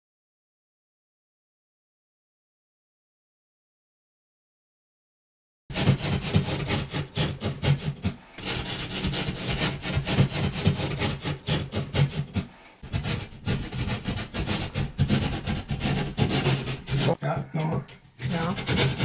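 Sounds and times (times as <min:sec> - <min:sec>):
saw cutting through drywall: 0:05.7 - 0:19.0.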